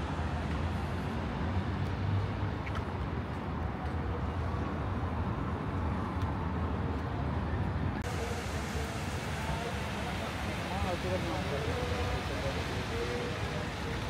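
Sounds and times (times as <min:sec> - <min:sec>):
road traffic rumble: 0:00.0 - 0:14.0
faint voices: 0:07.0 - 0:14.0.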